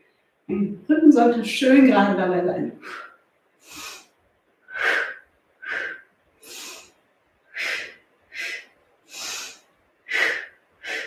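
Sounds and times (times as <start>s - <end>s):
woman breathing hard: 2.8s - 4.1s, 4.7s - 11.0s
short hissing breaths: 2.8s - 11.0s.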